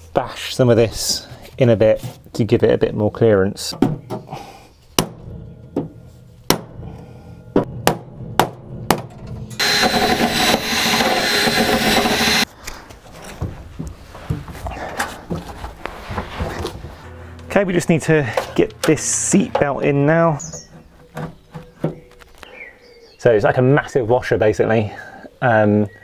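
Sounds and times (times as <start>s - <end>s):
hammer striking car bodywork: 5.0s - 6.8s, 7.5s - 9.2s.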